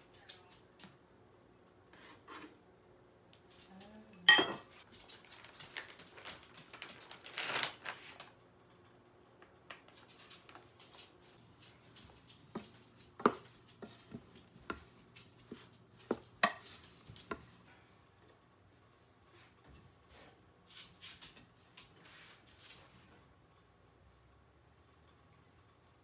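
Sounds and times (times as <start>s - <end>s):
utensils scraping bowl: 11.6s - 17.7s
knocks and clinks while stirring: 12.5s - 17.6s
utensils clanking on pot: 16.1s - 17.6s.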